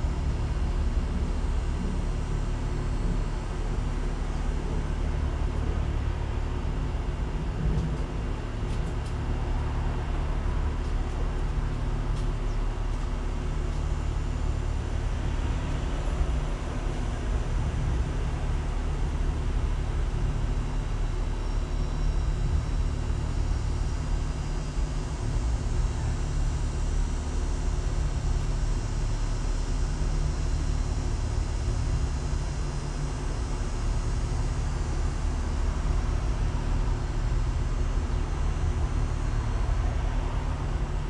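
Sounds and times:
low rumble of outdoor background: 0:00.0 - 0:41.0.

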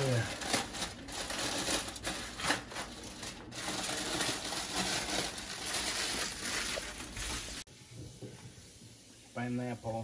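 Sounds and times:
aluminium foil crinkling: 0:00.0 - 0:07.7.

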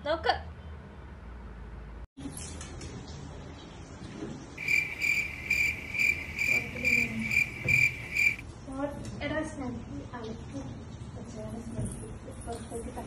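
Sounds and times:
high cricket chirp: 0:04.6 - 0:08.4.

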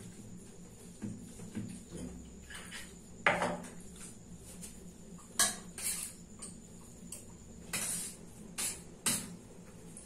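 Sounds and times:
metal bowl scraping: 0:05.4 - 0:06.3.

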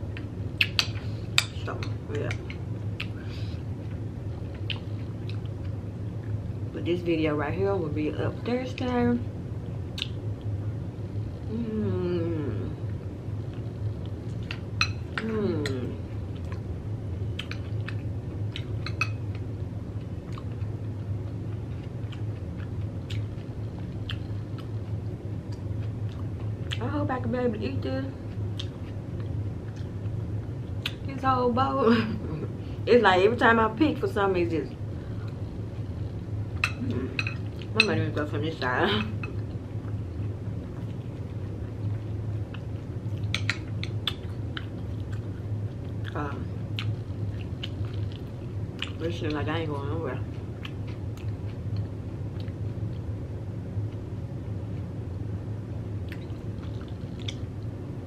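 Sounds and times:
steady low hum: 0:00.0 - 0:58.0
person chewing crunchy food: 0:39.4 - 0:49.0, 0:56.0 - 0:57.5.

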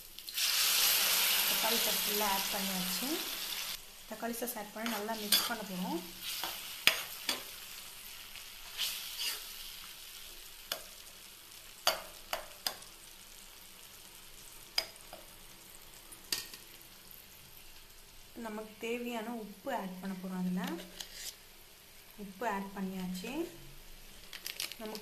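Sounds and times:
faint sizzle: 0:00.0 - 0:25.0
spoon knocking and scraping pan: 0:04.8 - 0:05.7, 0:06.3 - 0:07.6, 0:11.8 - 0:12.9.

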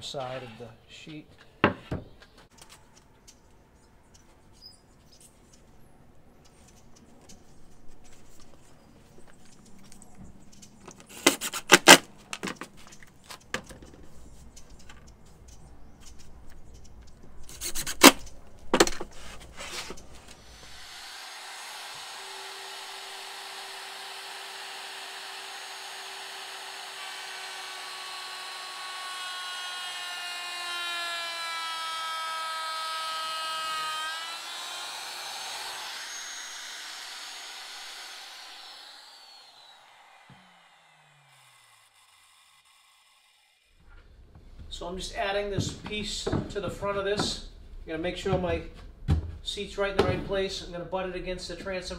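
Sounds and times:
router whining: 0:19.7 - 0:44.0
cordless drill driving screws: 0:20.3 - 0:43.6.

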